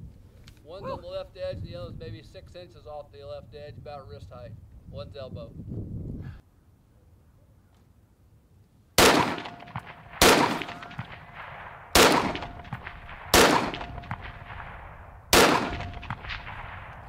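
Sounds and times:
rifle gunshots with echo: 9.0s - 17.0s.

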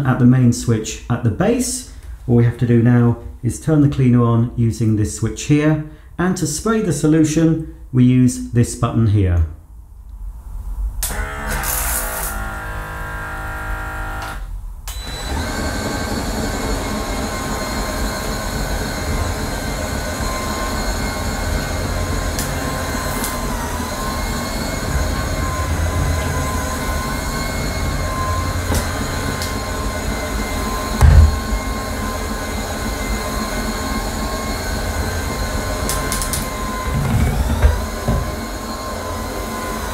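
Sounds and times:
floor cleaner motor humming: 11.1s - 14.4s, 15.0s - 39.9s.

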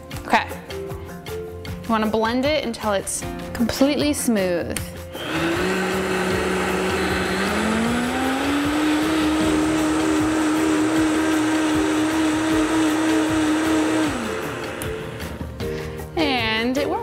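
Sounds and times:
blender motor whining: 5.1s - 15.7s.

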